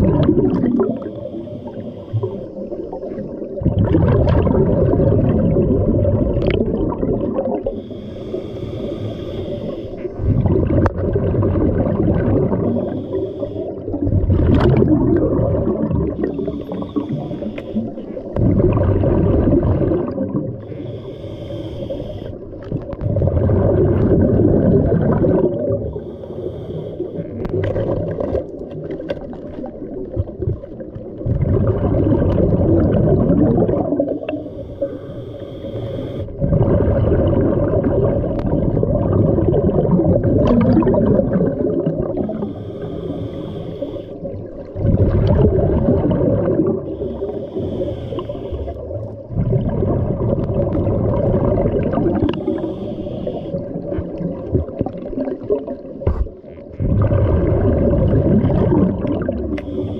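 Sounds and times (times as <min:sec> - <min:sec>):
exhaled bubbles underwater: 0:00.0 - 0:59.9
hissing regulator inhale: 0:00.9 - 0:03.2, 0:07.6 - 0:10.4, 0:12.6 - 0:14.1, 0:16.1 - 0:18.4, 0:20.6 - 0:22.7, 0:25.8 - 0:27.5, 0:34.0 - 0:36.4, 0:42.1 - 0:44.5, 0:46.8 - 0:49.0, 0:52.2 - 0:54.0, 0:59.5 - 0:59.9.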